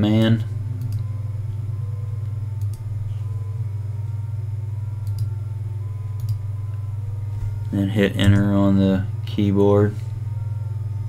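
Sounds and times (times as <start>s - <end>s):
low electrical hum: 0.0s - 11.0s
computer mouse clicks: 6.2s - 6.4s.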